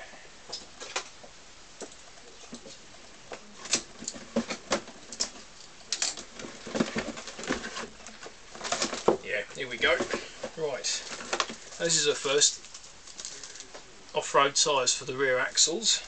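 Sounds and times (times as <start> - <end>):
cardboard boxes being handled: 6.2 - 12.4.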